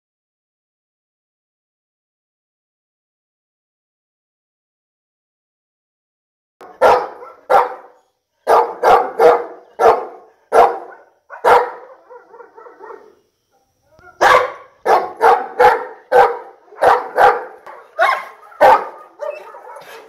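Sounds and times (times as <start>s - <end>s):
large dog barking: 6.6s - 13.2s, 14.0s - 20.0s.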